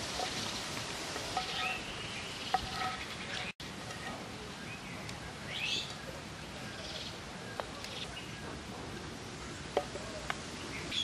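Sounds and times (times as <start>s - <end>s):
onions sizzling in oil: 0.0s - 4.1s
bird chirping: 1.4s - 8.6s.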